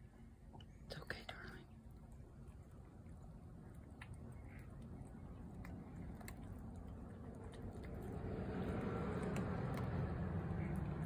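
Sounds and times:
cat eating from a bowl: 0.1s - 11.0s
vehicle engine low rumble: 2.2s - 11.0s.

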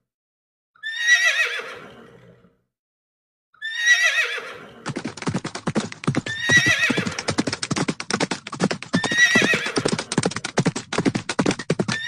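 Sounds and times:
horse whinnying: 0.8s - 2.4s, 3.6s - 5.0s, 6.2s - 7.5s, 8.9s - 10.4s, 11.8s - 12.0s
galloping hoofbeats: 4.8s - 12.0s.

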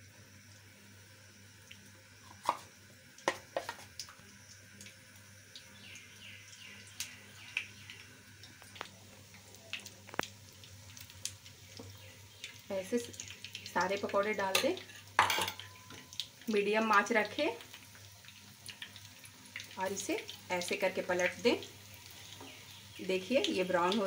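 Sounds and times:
batter frying in hot oil: 0.0s - 24.0s.

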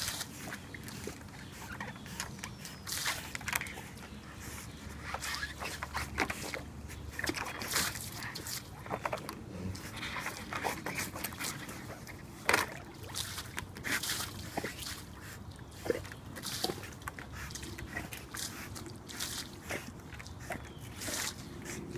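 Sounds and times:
water sloshing and splashing: 0.0s - 21.9s.

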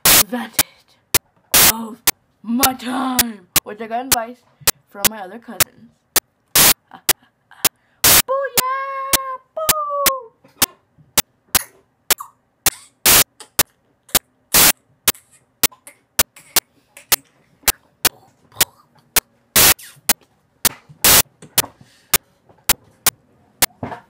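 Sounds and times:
sharp repeating clicks: 1.1s - 2.8s, 3.6s - 8.3s, 11.2s - 21.3s.

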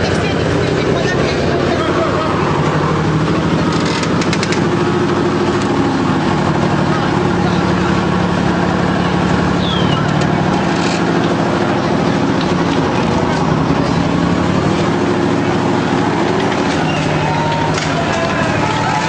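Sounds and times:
armoured vehicle engine running: 0.0s - 19.0s
people's voices: 0.0s - 19.0s.

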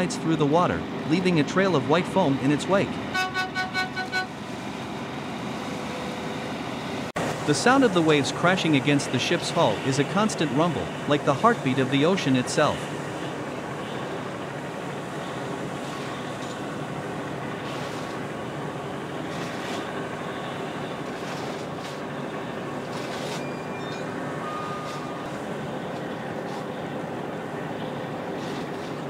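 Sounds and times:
ship engines rumbling: 0.0s - 29.0s
water washing: 7.0s - 29.0s.

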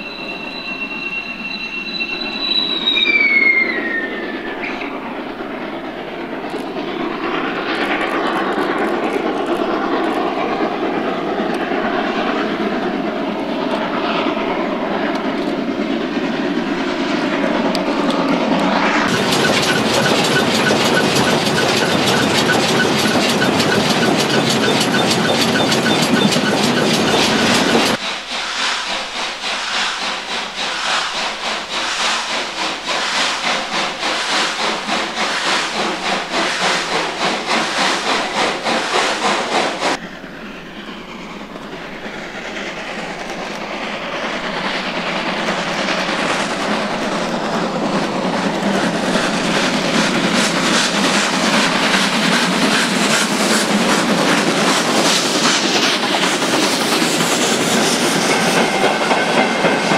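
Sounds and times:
steam locomotive clatter and hiss: 0.0s - 59.9s
steam locomotive rhythmic beat: 15.0s - 40.0s, 41.2s - 59.9s.

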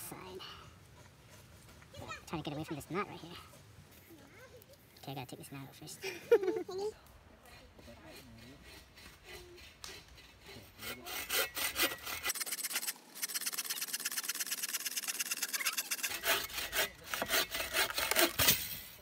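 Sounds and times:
hand saw cutting wood: 7.4s - 19.0s.

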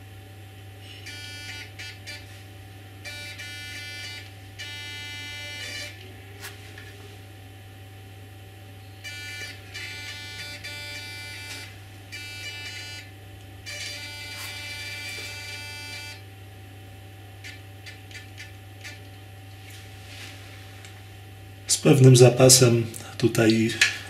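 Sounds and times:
servo buzzing with high whine: 0.6s - 7.5s, 8.7s - 19.1s.

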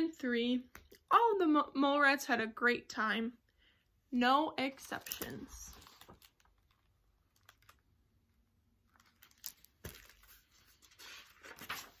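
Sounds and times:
paper rustling: 4.8s - 7.8s, 8.9s - 12.0s
book page turning: 5.0s - 7.9s, 8.9s - 12.0s.

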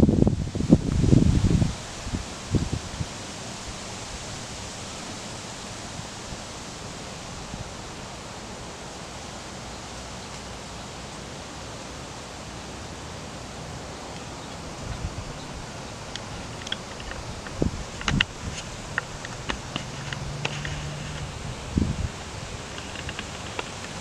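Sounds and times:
outdoor background hiss: 0.0s - 24.0s.

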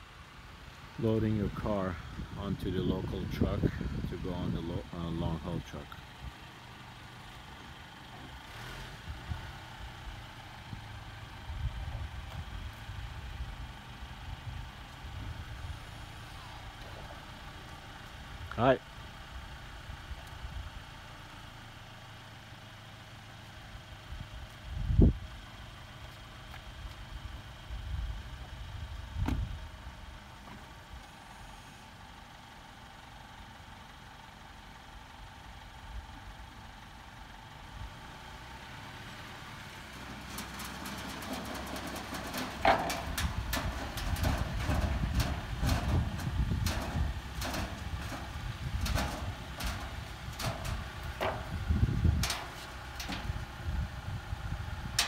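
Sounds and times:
car engine low rumble: 0.0s - 55.0s
car door shutting: 29.2s - 29.5s
clanks on metal ramps: 40.0s - 53.6s.

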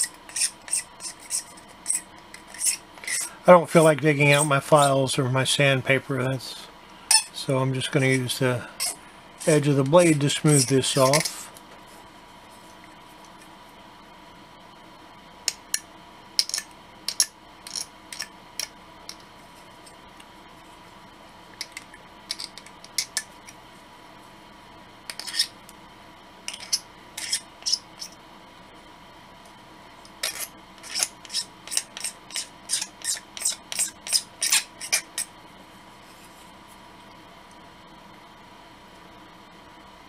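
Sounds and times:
knife blade scraping plastic: 0.0s - 3.3s, 25.1s - 25.5s, 26.5s - 28.1s, 30.2s - 35.3s.

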